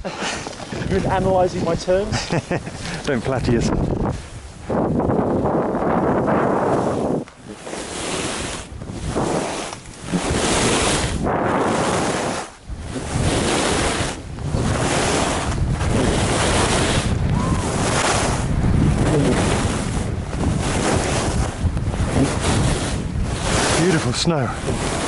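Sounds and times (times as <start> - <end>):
wind on microphone: 0.0 - 25.0
skis hissing over snow: 6.6 - 18.4, 19.0 - 25.0.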